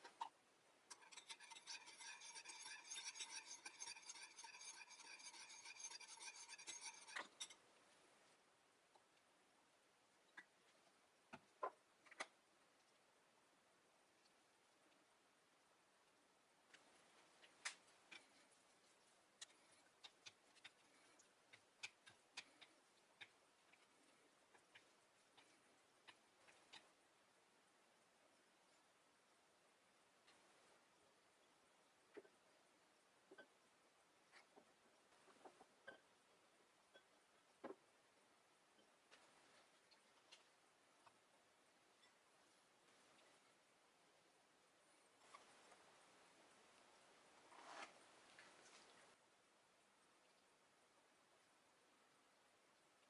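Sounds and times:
metal spoon scraping glass bowl: 0:00.9 - 0:07.6.

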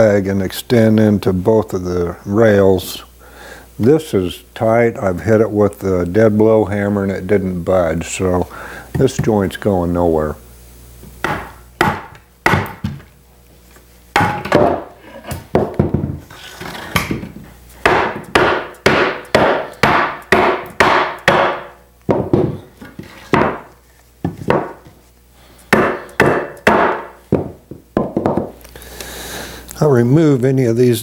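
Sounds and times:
hammer knocking wooden chair joints: 0:17.0 - 0:24.9, 0:25.7 - 0:28.6.

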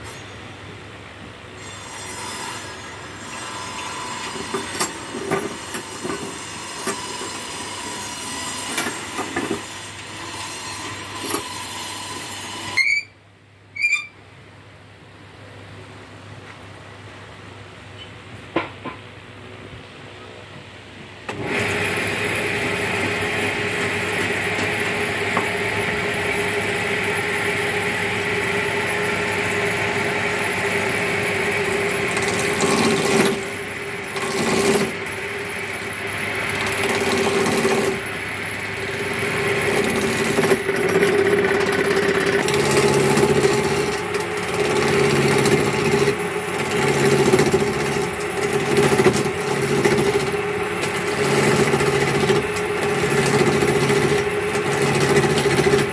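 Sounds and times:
chisel scraping spinning wood: 0:02.1 - 0:13.0, 0:21.3 - 0:55.9
lathe motor humming: 0:21.3 - 0:55.9.

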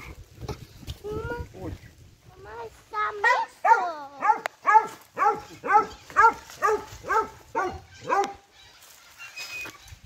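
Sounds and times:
dog barking: 0:03.2 - 0:08.4.

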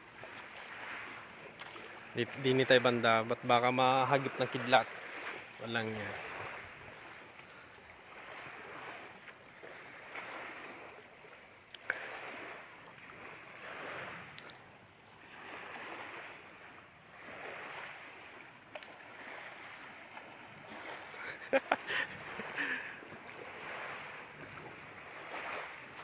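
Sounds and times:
small waves washing on shore: 0:00.0 - 0:26.0.

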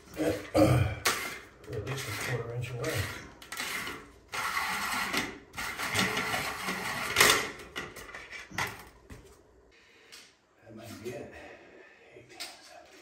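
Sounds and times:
metal drain grate scraping: 0:00.2 - 0:08.8.

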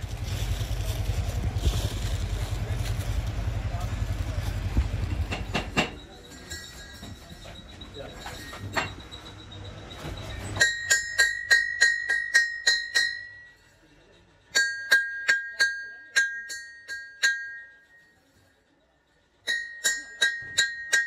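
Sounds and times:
hammer striking metal wheel hub: 0:05.1 - 0:13.8, 0:14.4 - 0:18.2, 0:19.4 - 0:21.0.

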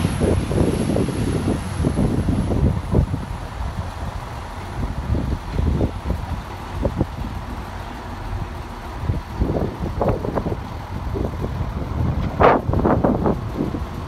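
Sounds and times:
diesel train pulling away: 0:00.0 - 0:14.0
wind thumps on microphone: 0:09.0 - 0:14.0.

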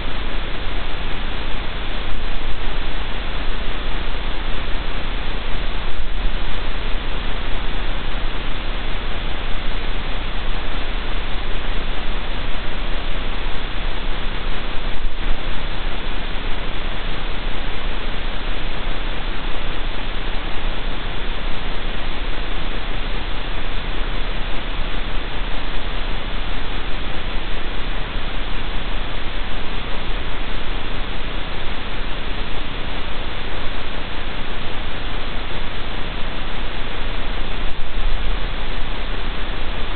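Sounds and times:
low hum: 0:00.0 - 0:39.9
static hiss: 0:00.0 - 0:39.9.

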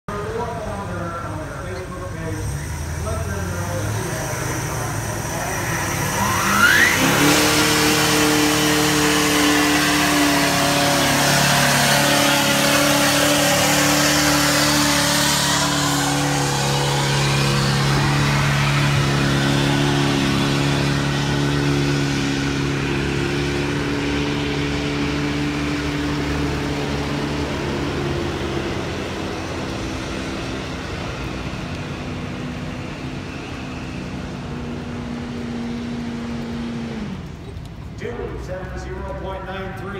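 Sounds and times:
diesel truck engine revving: 0:00.1 - 0:39.9
turbo whine: 0:02.4 - 0:09.5.

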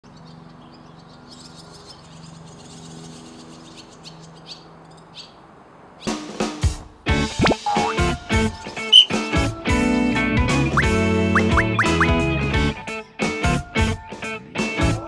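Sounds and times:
music with plucked notes: 0:07.4 - 0:08.2, 0:10.0 - 0:12.4.

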